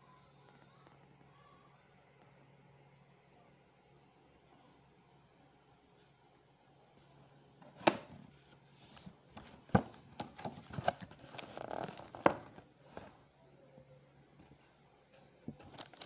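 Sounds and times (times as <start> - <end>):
cardboard and paper rustling: 7.6 - 13.2, 15.4 - 16.0.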